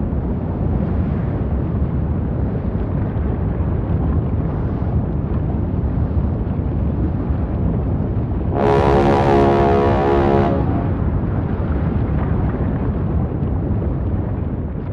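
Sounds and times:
volcano rumbling: 0.0s - 14.9s
sustained musical chord: 8.6s - 11.1s.

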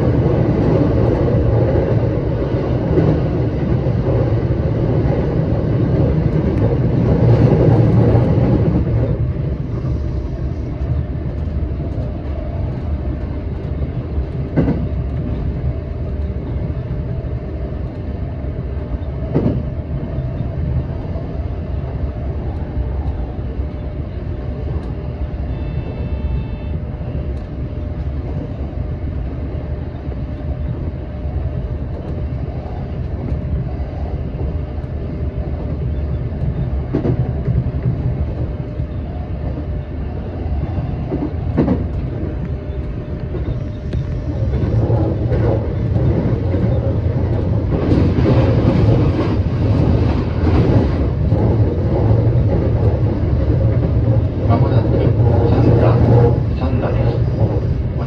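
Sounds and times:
train wheels rumbling on rail: 0.0s - 58.0s
clacks over rail joints: 36.4s - 39.7s.

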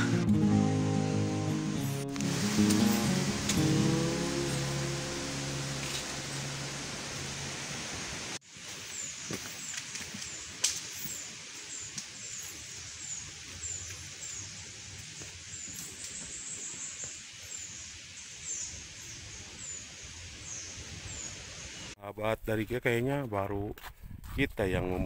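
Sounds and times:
steady high hiss: 0.8s - 22.0s
footsteps: 8.6s - 17.3s.

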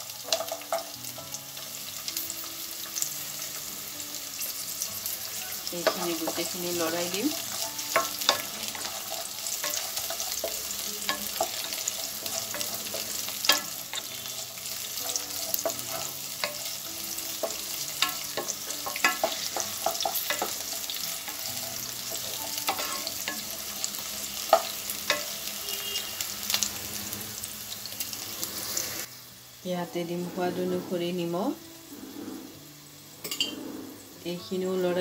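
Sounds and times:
vegetables sizzling in hot oil: 0.0s - 35.0s
wooden spatula scraping a pan: 5.6s - 23.5s, 30.0s - 32.6s.

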